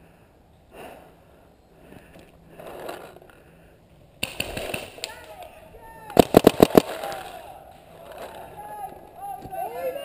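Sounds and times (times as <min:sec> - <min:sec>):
paintball shots cracking: 0:04.2 - 0:07.6.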